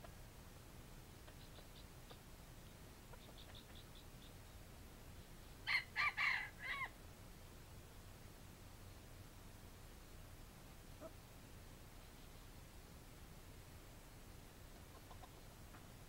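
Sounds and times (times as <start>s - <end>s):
rooster crowing: 5.6s - 7.0s.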